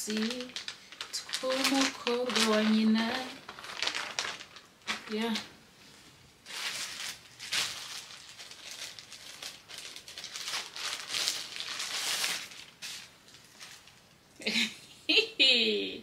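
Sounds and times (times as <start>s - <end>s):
plastic packaging crinkling: 0.0s - 5.6s, 6.4s - 14.2s.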